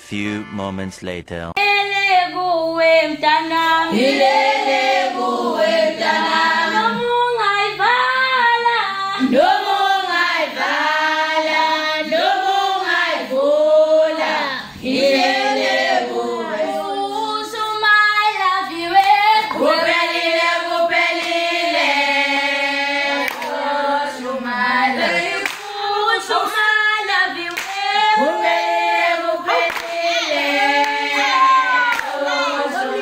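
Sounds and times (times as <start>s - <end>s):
girls singing together: 1.6s - 33.0s
hands clapping: 23.2s - 23.6s, 25.4s - 25.8s, 27.5s - 27.8s, 29.6s - 30.0s, 31.9s - 32.2s.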